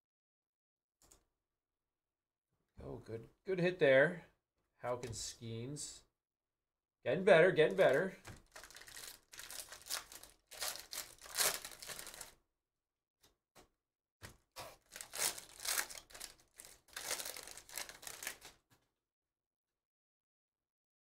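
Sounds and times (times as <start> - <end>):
foil wrappers tearing and crinkling: 7.8 - 12.4, 14.7 - 18.6.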